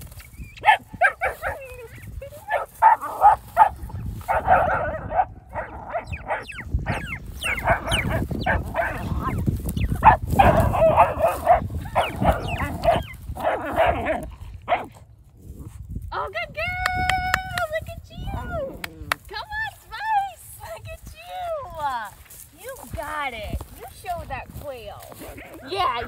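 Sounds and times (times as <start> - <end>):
puppy yipping and whining: 5.6 - 14.1.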